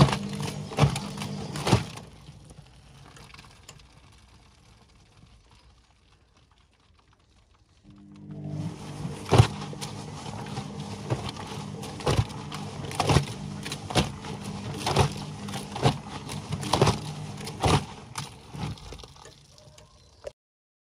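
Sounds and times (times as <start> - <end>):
water slapping in drum: 0.0 - 2.1, 8.8 - 19.8
washing machine motor hum: 0.0 - 3.3, 7.9 - 20.3.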